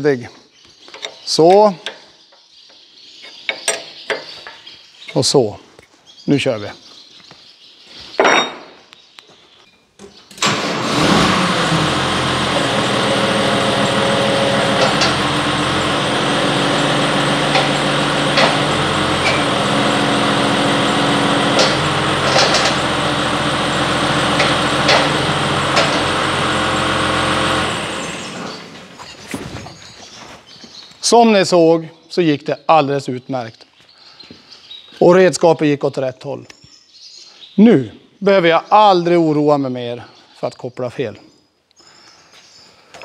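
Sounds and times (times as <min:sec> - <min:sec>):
tractor diesel engine starting and running: 0:10.4 - 0:29.9.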